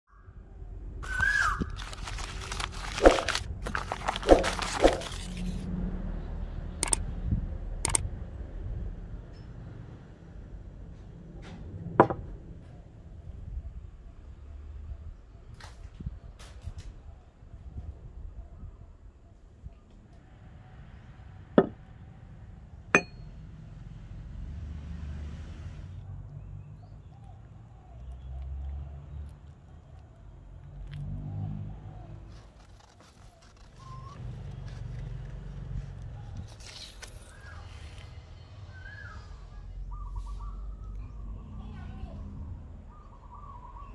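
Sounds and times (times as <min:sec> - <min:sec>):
paper crinkling and rustling: 0:01.0 - 0:05.7, 0:32.3 - 0:38.1
sharp clicks: 0:06.8 - 0:07.0, 0:07.8 - 0:08.0.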